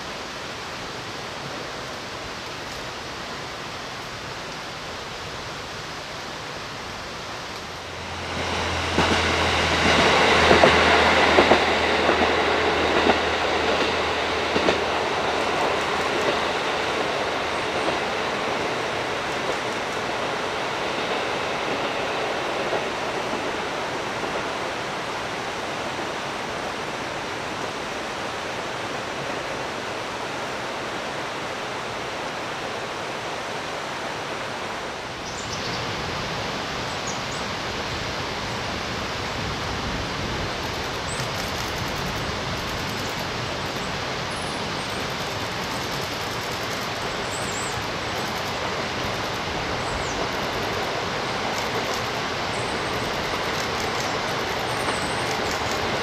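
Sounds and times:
diesel train engine hum: 0.0 - 56.0
steady rushing noise: 0.0 - 56.0
train wheels clicking on rail joints: 7.5 - 24.5, 40.3 - 56.0.

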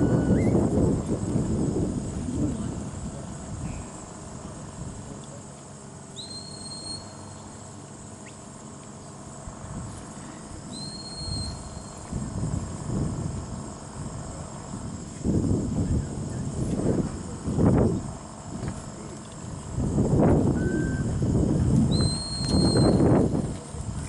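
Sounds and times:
high whistle commands: 6.2 - 7.4, 10.7 - 12.0, 20.6 - 21.1, 21.9 - 23.1.

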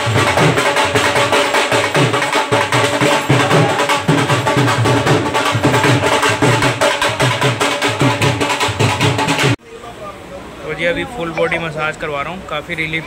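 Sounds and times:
barrel drums beaten fast: 0.0 - 9.6.

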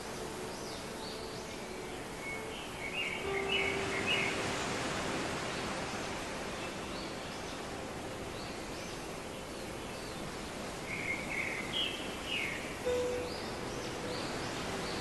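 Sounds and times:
steady background hiss: 0.0 - 15.0
faint high bird chirps: 11.0 - 15.0.

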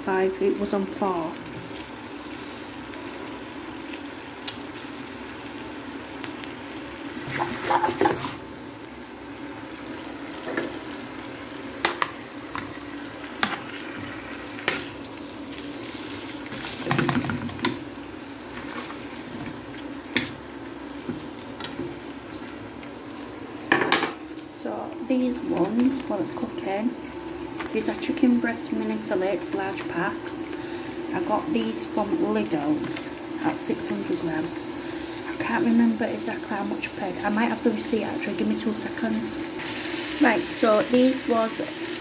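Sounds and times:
meat sizzling in hot oil: 0.0 - 42.0
utensil scraping a pan: 7.2 - 8.4.

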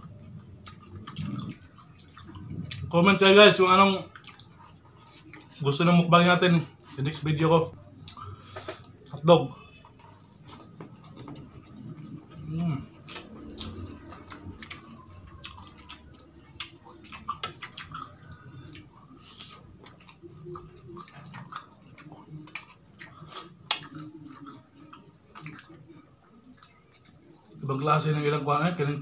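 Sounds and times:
person chewing food: 0.0 - 5.9, 6.6 - 27.7.

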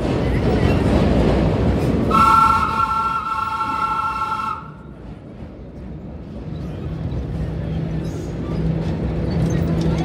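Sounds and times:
train wheel and rail rumble: 0.0 - 10.0.

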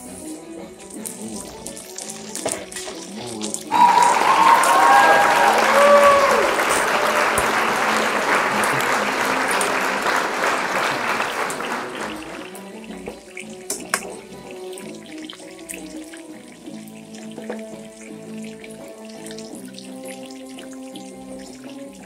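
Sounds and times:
oil crackling and popping: 0.4 - 5.0, 11.5 - 22.0
meat sizzling in hot oil: 0.5 - 4.1, 12.5 - 22.0.

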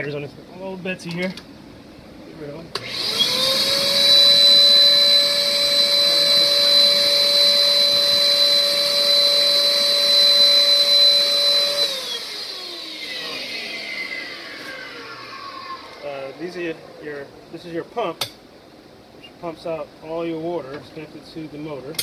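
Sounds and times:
vacuum cleaner whining: 2.7 - 17.7.

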